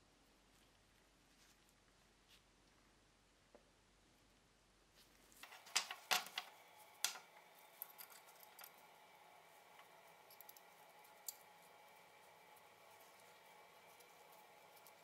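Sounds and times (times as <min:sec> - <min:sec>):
small metal parts clicking: 0:05.4 - 0:08.8.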